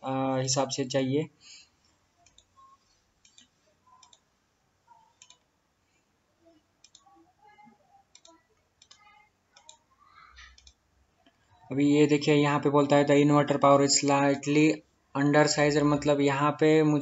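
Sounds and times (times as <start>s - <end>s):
computer mouse clicking: 2.2s - 4.3s, 5.0s - 5.5s, 6.8s - 7.2s, 8.1s - 11.4s.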